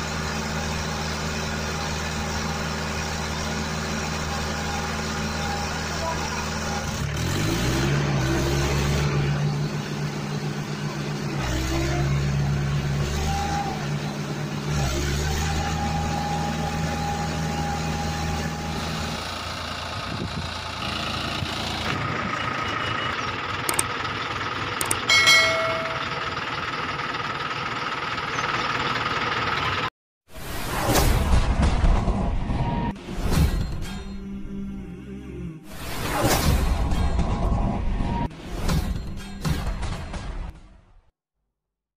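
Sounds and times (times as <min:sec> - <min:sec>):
tractor engine humming: 0:00.0 - 0:07.0, 0:09.1 - 0:29.9
sharp clicks: 0:23.7 - 0:23.9, 0:24.8 - 0:25.1.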